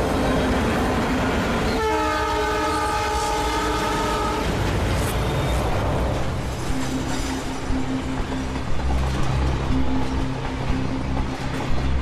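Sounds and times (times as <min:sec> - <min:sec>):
train rumbling along track: 0:00.0 - 0:12.0
train horn blast: 0:01.7 - 0:04.6.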